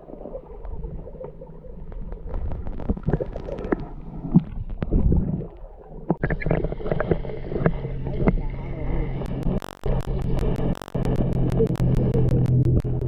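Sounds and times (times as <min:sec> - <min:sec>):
underwater rumble: 0:00.0 - 0:13.0
steady low hum: 0:06.5 - 0:13.0.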